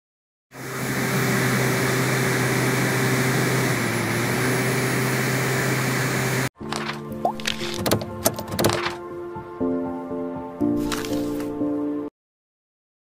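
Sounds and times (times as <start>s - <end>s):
small electric fan whirring: 0.6s - 6.5s.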